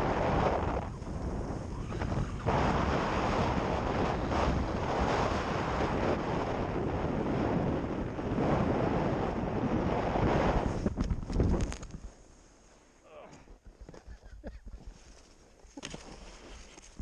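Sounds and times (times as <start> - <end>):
wind rushing over microphone: 0.0 - 12.2
skis scraping on snow: 14.8 - 17.0.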